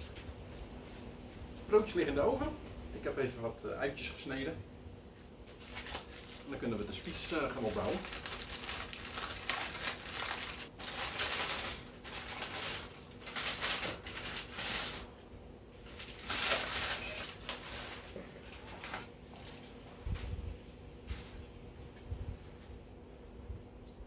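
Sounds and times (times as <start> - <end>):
aluminium foil crinkling: 5.4 - 20.3, 21.0 - 21.5.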